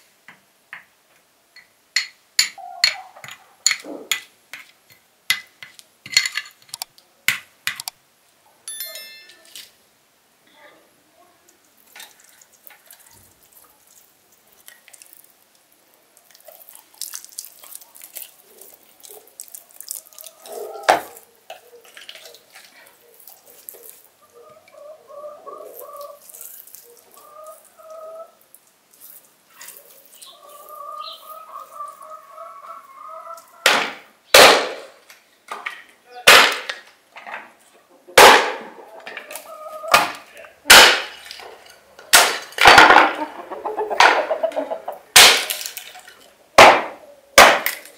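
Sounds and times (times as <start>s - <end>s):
wet squelching of raw fish: 11.8s - 24.1s, 25.7s - 32.0s.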